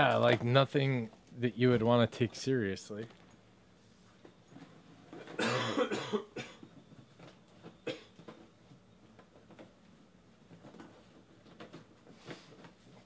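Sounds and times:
person coughing: 0:05.3 - 0:06.6, 0:07.8 - 0:08.1.

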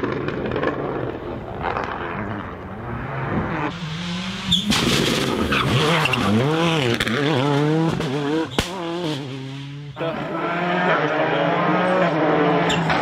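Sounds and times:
rally car engine revving: 0:00.0 - 0:13.0
sharp bang: 0:04.6 - 0:05.5.

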